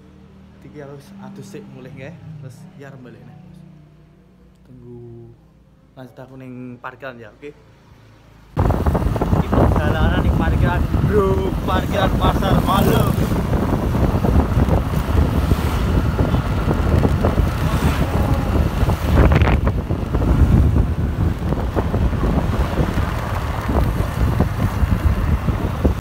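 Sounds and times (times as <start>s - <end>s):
motorcycle road noise: 0.0s - 5.9s, 7.6s - 26.0s
wind buffeting microphone: 8.6s - 26.0s.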